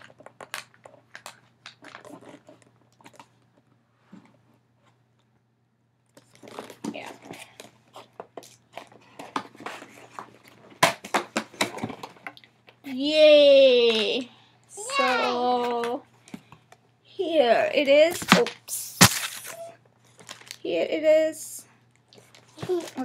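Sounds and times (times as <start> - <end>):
cardboard tape tearing: 18.3 - 19.7.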